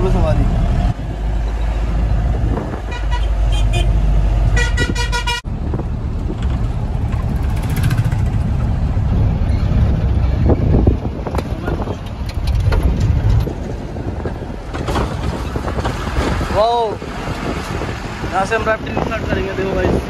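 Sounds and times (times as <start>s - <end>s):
road noise: 0.0s - 20.0s
van engine rumble: 0.0s - 20.0s
vehicle horn honking: 2.9s - 4.0s, 4.6s - 5.4s.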